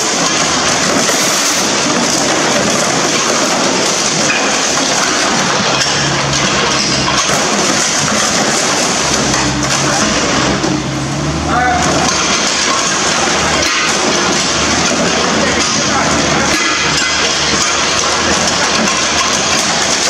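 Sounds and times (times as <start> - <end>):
excavator engine humming: 5.5 - 20.0
metal bodywork crunching: 11.8 - 20.0.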